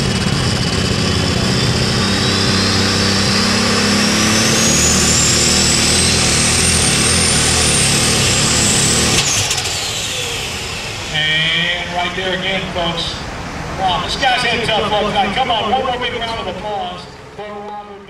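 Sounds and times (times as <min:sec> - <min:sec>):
tractor engine running under load: 0:00.0 - 0:13.1
turbocharger whine: 0:00.0 - 0:18.0.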